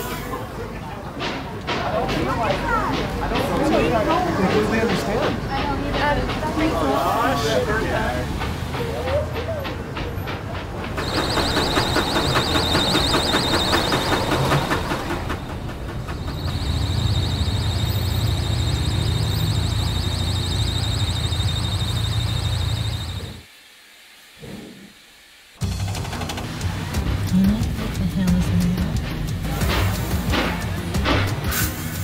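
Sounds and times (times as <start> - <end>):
fan belt squealing: 11.0 - 23.4.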